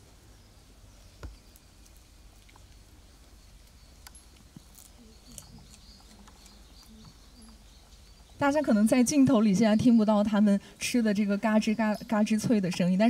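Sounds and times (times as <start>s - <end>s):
animals chewing and crunching: 1.2s - 8.9s.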